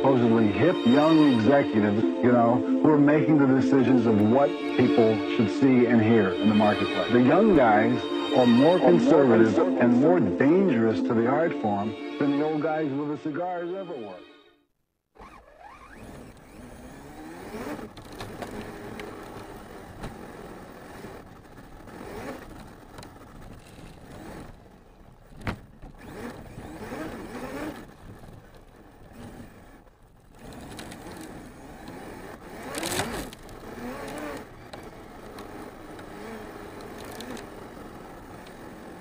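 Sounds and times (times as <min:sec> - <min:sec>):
electric motor whining: 0:00.0 - 0:12.6, 0:15.2 - 0:39.0
tyre and chassis noise: 0:15.1 - 0:39.0.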